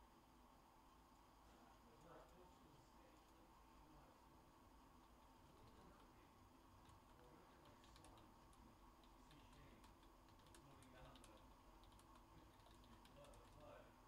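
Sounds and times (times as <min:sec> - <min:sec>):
faint clicks and taps: 0:05.0 - 0:13.8.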